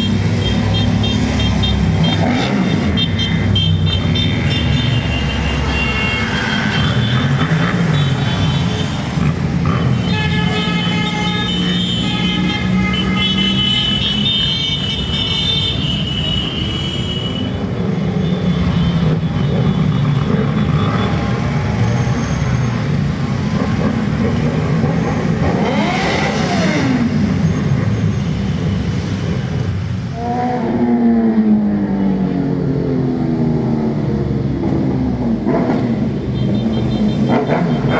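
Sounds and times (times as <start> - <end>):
motorcycle engines passing: 0.0 - 16.6, 17.2 - 37.9.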